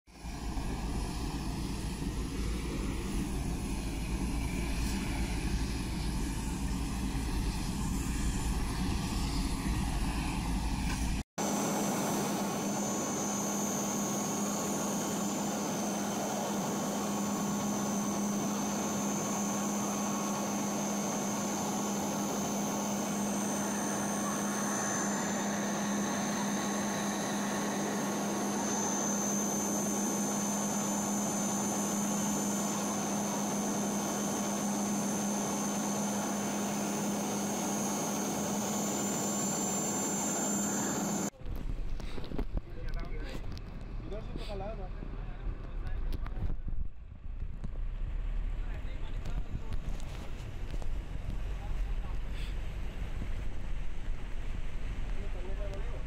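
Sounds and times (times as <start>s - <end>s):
aircraft propeller drone: 0.1s - 42.2s.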